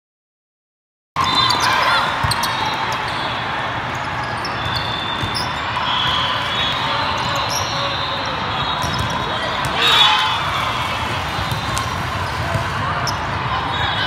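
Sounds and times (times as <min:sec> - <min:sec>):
sneakers squeaking on court: 0:01.2 - 0:10.1, 0:11.4 - 0:13.4
echoing sports hall din: 0:01.2 - 0:14.0.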